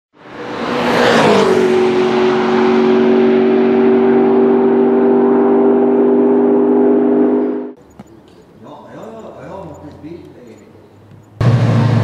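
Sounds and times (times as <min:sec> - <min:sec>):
sports car passing at speed: 0:00.2 - 0:07.8.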